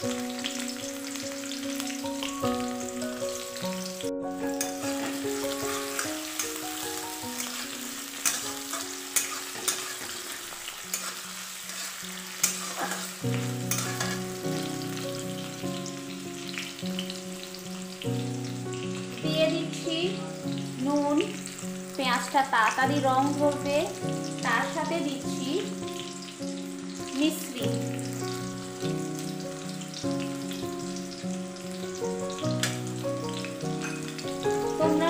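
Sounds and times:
soft simple melody: 0.0 - 11.4, 12.0 - 35.0
onions sizzling in hot oil: 0.0 - 35.0
metal spatula scraping pan: 7.4 - 14.4.

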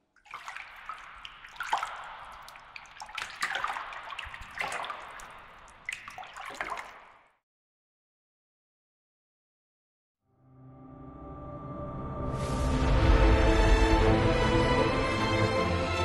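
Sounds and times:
sharp loud water drips: 0.0 - 7.4
water trickling and dripping: 0.0 - 7.4.

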